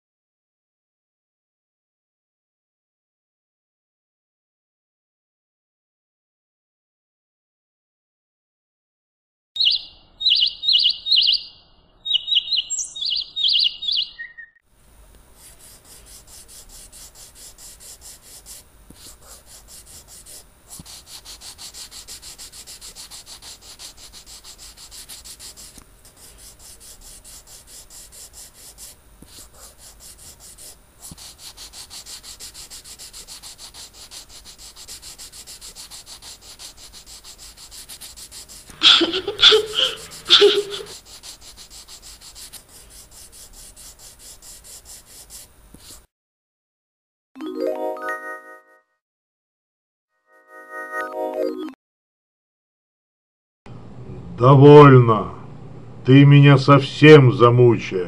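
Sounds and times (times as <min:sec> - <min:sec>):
birds chirping: 0:09.6 - 0:14.6, 0:38.8 - 0:40.9
paintbrush scrubbing on canvas: 0:15.3 - 0:46.1.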